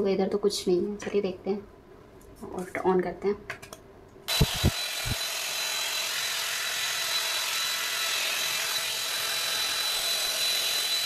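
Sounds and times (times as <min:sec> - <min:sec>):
fan motor whine: 0:04.3 - 0:08.7
hair dryer blowing air: 0:04.3 - 0:11.0.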